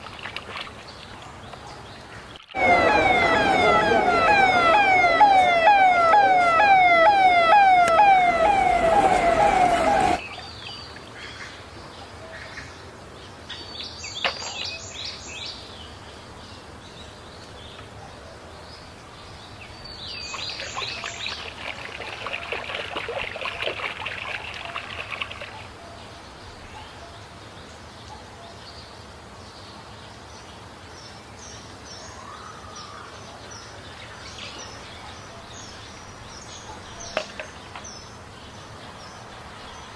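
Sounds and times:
water splashing in a tub: 0:00.0 - 0:01.4, 0:20.3 - 0:25.7
ambulance siren wailing: 0:02.6 - 0:10.2.

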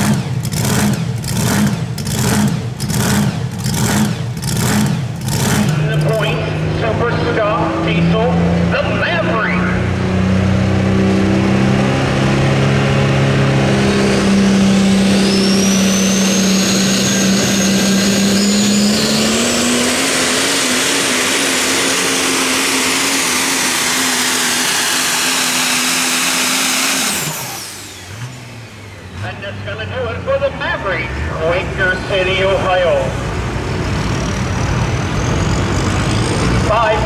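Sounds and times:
truck engine running hard: 0:00.0 - 0:37.0
high whine: 0:13.4 - 0:30.5.

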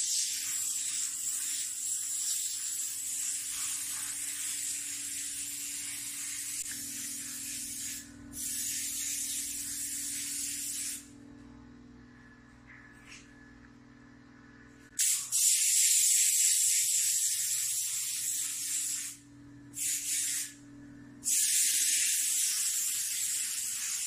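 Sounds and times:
paint spray gun hissing: 0:00.0 - 0:11.1, 0:15.0 - 0:19.2, 0:19.8 - 0:20.6, 0:21.2 - 0:24.0
low steady hum: 0:11.0 - 0:15.0, 0:20.6 - 0:21.2.

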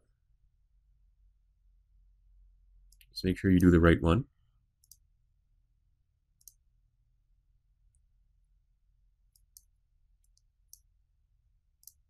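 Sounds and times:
computer mouse clicks: 0:04.8 - 0:05.1, 0:06.4 - 0:06.6, 0:09.3 - 0:10.9, 0:11.8 - 0:12.0.

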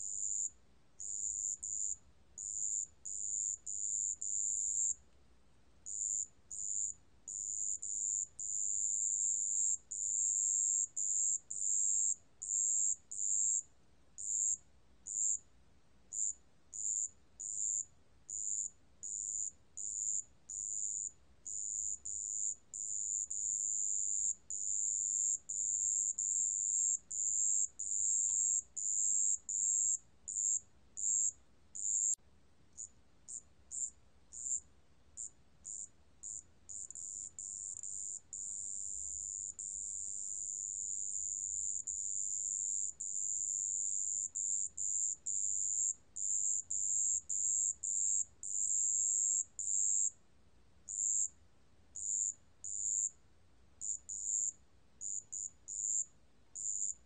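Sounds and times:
cricket trilling: 0:05.8 - 0:13.6, 0:14.2 - 0:15.4, 0:16.1 - 0:32.2, 0:32.8 - 0:34.6, 0:50.9 - 0:51.3, 0:52.0 - 0:53.1, 0:53.8 - 0:57.0.

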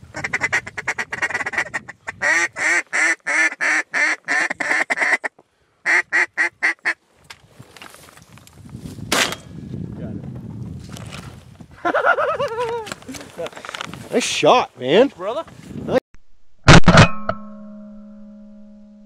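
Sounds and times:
duck call quacks: 0:00.2 - 0:07.0.

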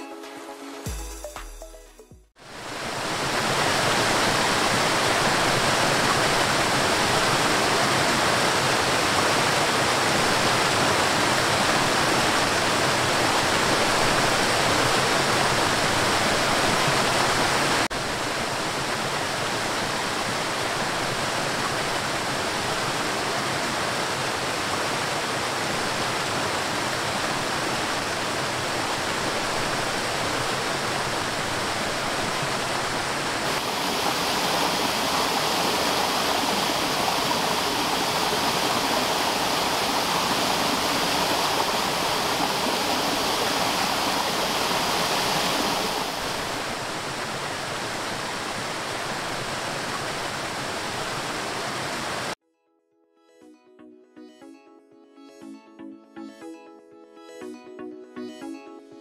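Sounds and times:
rushing water: 0:02.4 - 0:52.4.

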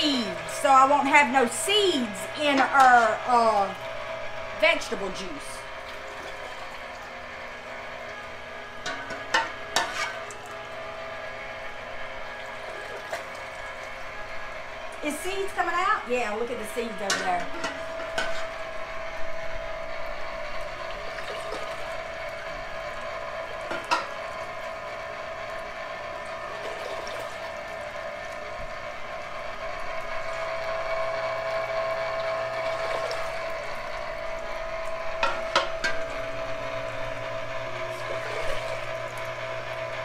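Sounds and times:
electric tomato strainer humming: 0:00.0 - 0:40.0.

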